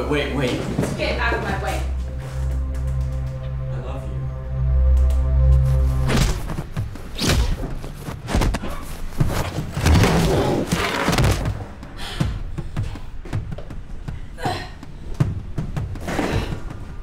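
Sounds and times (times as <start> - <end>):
thuds and scuffling of a fight: 7.2 - 11.7.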